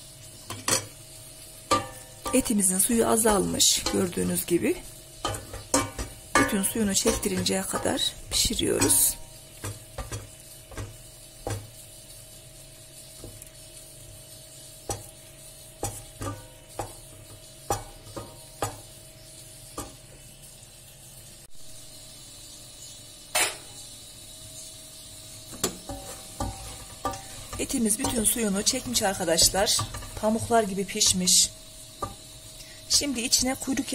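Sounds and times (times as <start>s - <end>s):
meat sizzling: 0.0s - 33.9s
wooden spoon knocking on pot: 5.2s - 11.7s, 14.9s - 15.2s, 15.8s - 18.9s, 25.5s - 30.6s.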